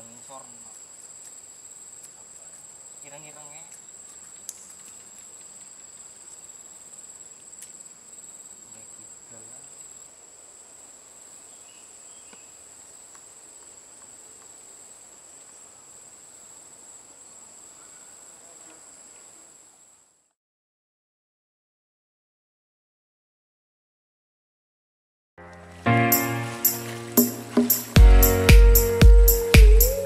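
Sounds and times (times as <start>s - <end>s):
faint background hiss: 0.0s - 20.3s
high-pitched insect trill: 26.1s - 30.0s.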